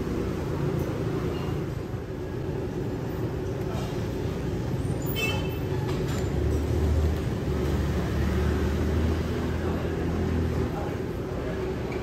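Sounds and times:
brief high squeal: 0:05.0 - 0:05.6.

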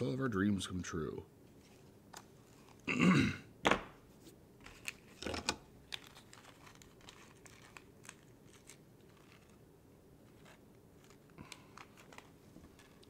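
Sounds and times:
small hardware rustling and clicking: 0:10.4 - 0:13.0.

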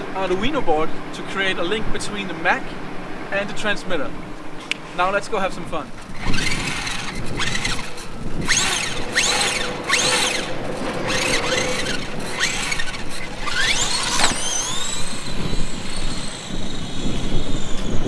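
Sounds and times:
toy truck electric motor whining: 0:06.0 - 0:18.0.

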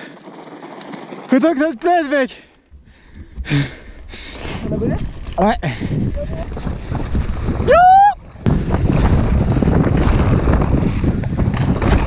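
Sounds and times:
mountain bike rattling on dirt: 0:00.0 - 0:12.0
wind buffeting microphone: 0:02.7 - 0:12.0
rising whoop: 0:07.6 - 0:08.2.

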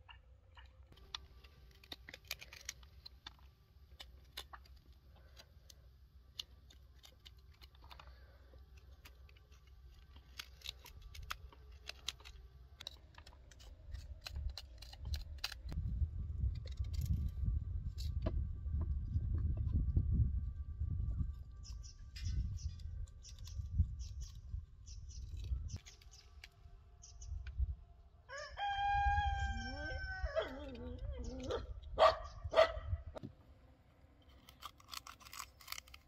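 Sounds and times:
knife cutting and scraping fruit: 0:00.5 - 0:20.0, 0:21.1 - 0:27.3, 0:34.1 - 0:36.0
low rumble: 0:12.4 - 0:25.8.

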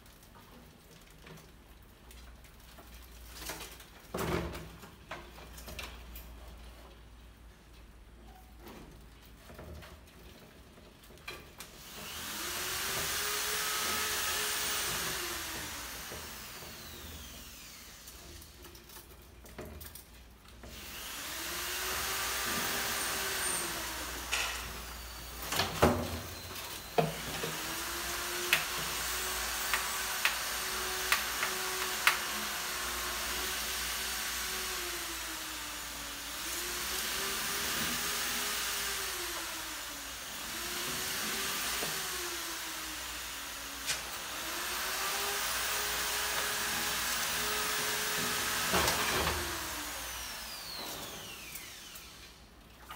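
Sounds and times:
whirring mechanical noise: 0:11.8 - 0:19.0, 0:20.7 - 0:52.6.

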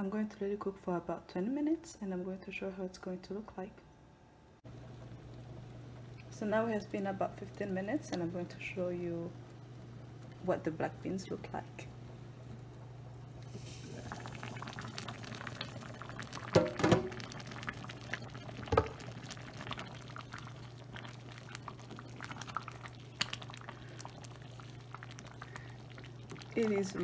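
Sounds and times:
steady low hum: 0:00.0 - 0:27.0
soup bubbling and popping: 0:12.4 - 0:27.0
knocks: 0:16.6 - 0:17.1.

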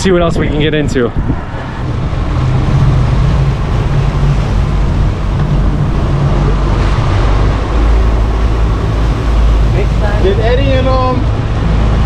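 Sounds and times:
boat engines humming: 0:00.0 - 0:12.0
wind noise on microphone: 0:00.0 - 0:12.0.

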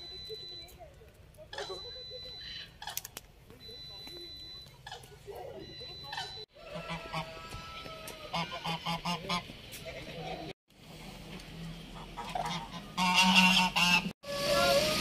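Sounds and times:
geese honking: 0:06.1 - 0:09.5, 0:12.0 - 0:15.0.

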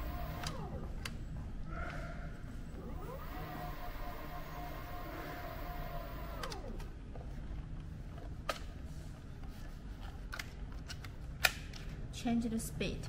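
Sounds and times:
electric motors whining: 0:00.0 - 0:01.2, 0:02.6 - 0:07.0.

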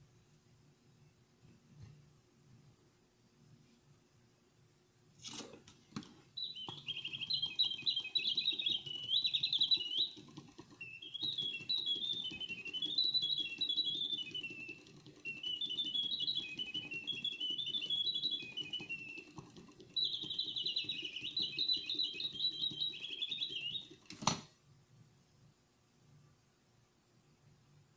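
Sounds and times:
mechanical bird trilling whistles: 0:06.4 - 0:24.1.

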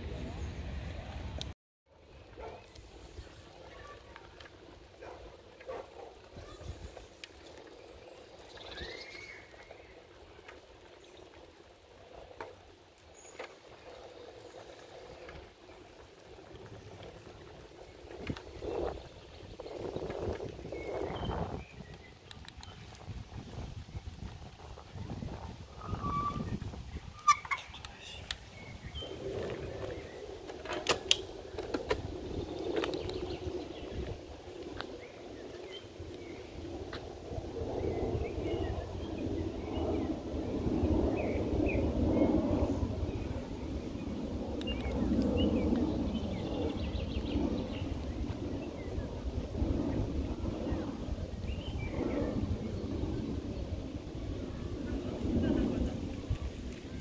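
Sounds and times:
bird chirps: 0:08.5 - 0:09.7.

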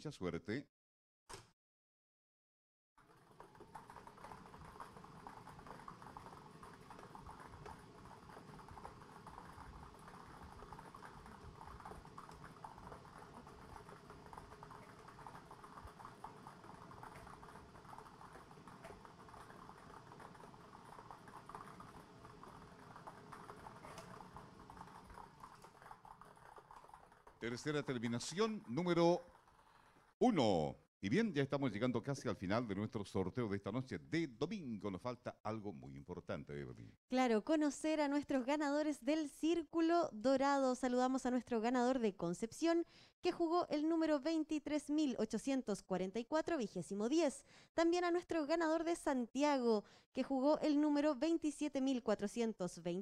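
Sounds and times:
plastic balls clattering in drum: 0:03.0 - 0:29.8.

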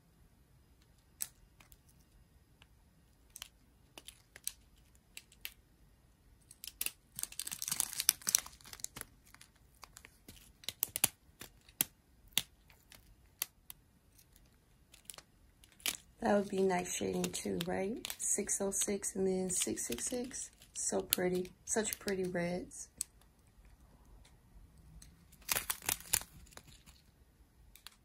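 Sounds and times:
plastic packets crinkling: 0:03.3 - 0:05.6, 0:06.4 - 0:23.3, 0:24.9 - 0:27.1.

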